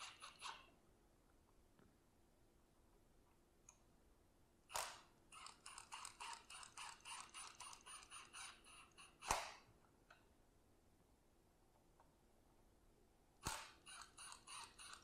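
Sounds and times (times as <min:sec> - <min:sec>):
cordless ratchet clicking: 0:04.7 - 0:08.6, 0:13.4 - 0:15.0.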